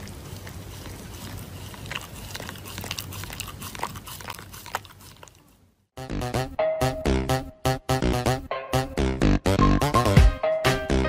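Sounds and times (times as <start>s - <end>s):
dog chewing paper tissue: 0.0s - 5.6s.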